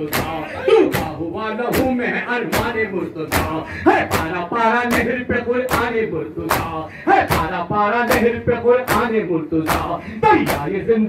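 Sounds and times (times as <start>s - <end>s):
hand slaps on chests: 6.5s - 7.5s, 9.7s - 10.7s.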